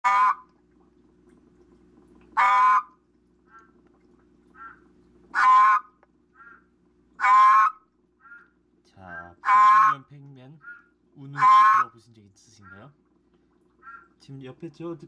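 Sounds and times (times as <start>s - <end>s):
frog croaking hoarsely: 0.0s - 0.5s, 2.4s - 3.8s, 4.5s - 13.0s, 13.8s - 14.2s.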